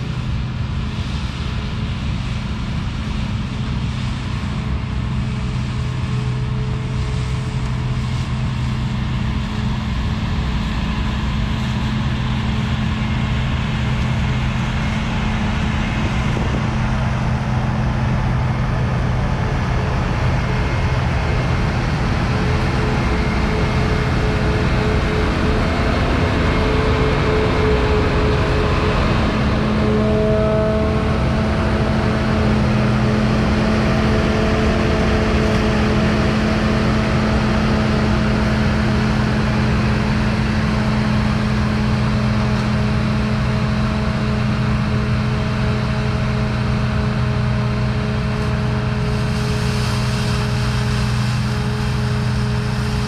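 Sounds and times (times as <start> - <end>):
combine harvester working: 0.0 - 53.0.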